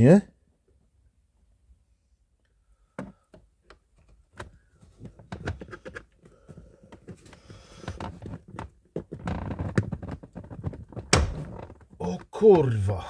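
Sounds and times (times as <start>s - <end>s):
plastic handle clicking and scraping: 3.0s - 6.2s, 6.9s - 11.9s.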